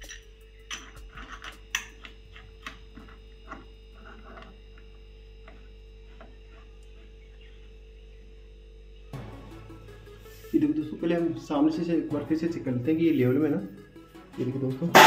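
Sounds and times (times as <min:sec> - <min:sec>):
faint steady hum: 0:00.0 - 0:10.6.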